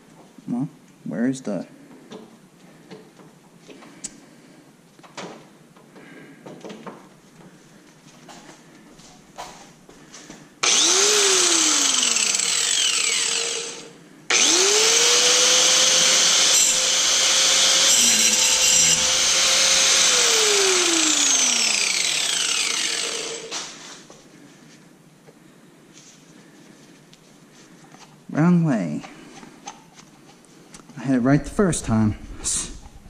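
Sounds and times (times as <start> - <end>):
harsh grinding: 10.6 - 23.9
power cutting tool motor whine: 10.6 - 23.9.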